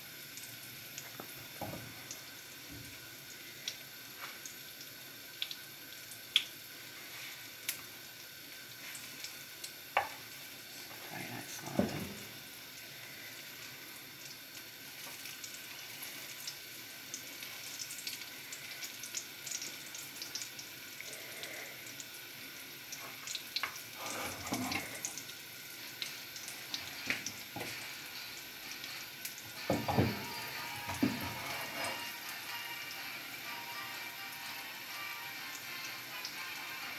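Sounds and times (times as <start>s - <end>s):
batter frying with crackles: 0.0s - 36.9s.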